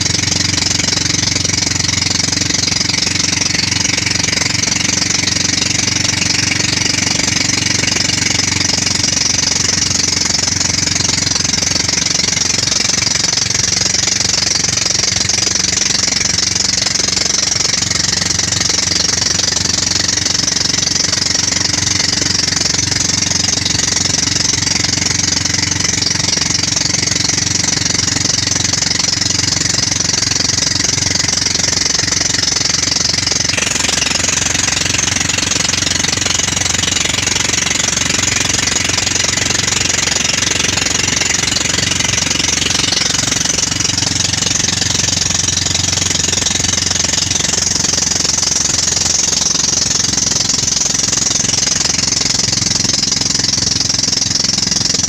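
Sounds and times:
boat engine running: 0.0 - 55.0
wind: 0.0 - 55.0
rushing water: 33.0 - 47.0.

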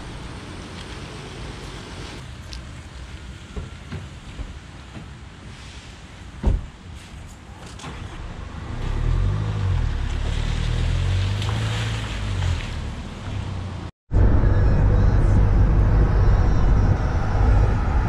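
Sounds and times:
car door slamming: 6.4 - 6.8
car engine driving away: 7.8 - 13.6
wind noise on microphone: 14.1 - 18.0.

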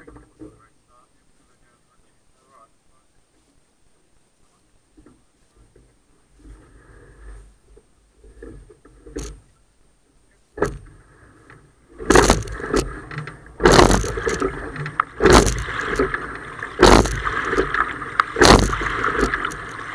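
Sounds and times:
water rushing along hull: 3.8 - 19.9
oar blades splashing and clunking: 4.9 - 9.6, 10.5 - 19.9.

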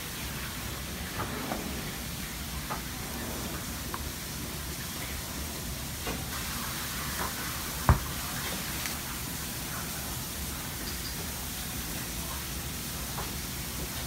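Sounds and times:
steady kitchen hiss: 0.0 - 14.0.

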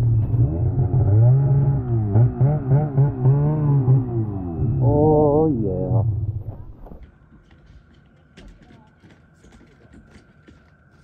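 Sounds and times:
snowmobile engine revving: 0.0 - 6.4.

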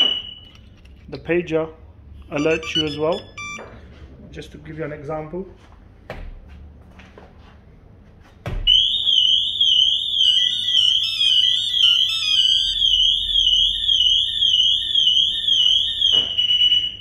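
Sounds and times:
car alarm click: 0.0 - 0.6, 2.4 - 3.7, 8.7 - 17.0
pager remote beeps: 2.3 - 3.7
car alarm siren warbling: 2.4 - 3.7, 8.7 - 17.0.

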